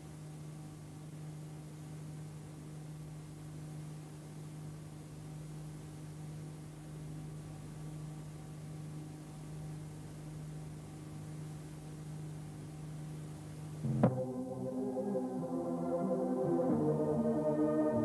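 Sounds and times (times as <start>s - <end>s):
low hum and hiss: 0.0s - 18.0s
sudden click: 13.8s - 14.4s
music with sustained tones: 13.8s - 18.0s.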